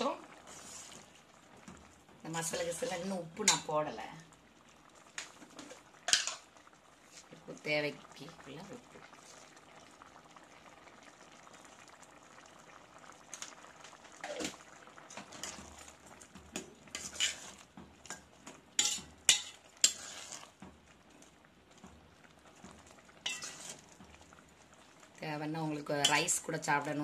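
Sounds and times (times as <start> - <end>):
curry bubbling: 0.0 - 27.0
ladle scraping metal pot: 0.4 - 1.1, 5.2 - 6.4, 14.2 - 15.9, 16.6 - 20.6, 23.2 - 24.0.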